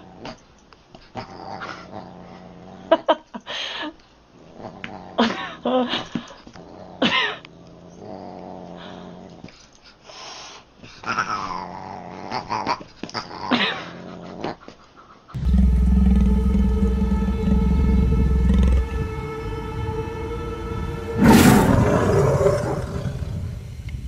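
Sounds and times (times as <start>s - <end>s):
cat and dog growling: 1.1s - 3.1s, 4.4s - 5.6s, 6.5s - 9.5s, 11.0s - 16.6s
loud music: 15.4s - 23.6s.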